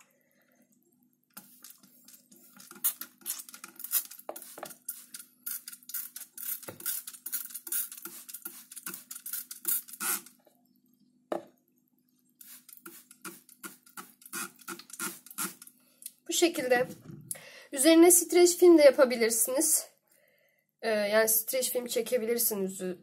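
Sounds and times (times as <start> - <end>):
water spray hissing: 1.4 - 10.3, 12.4 - 15.7
spray bottle trigger pumps: 1.4 - 10.4, 12.4 - 15.7.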